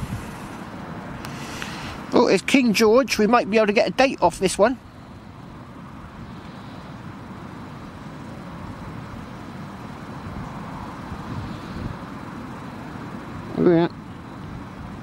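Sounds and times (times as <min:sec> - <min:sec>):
strong wind over microphone: 0:00.0 - 0:00.5, 0:11.1 - 0:12.1.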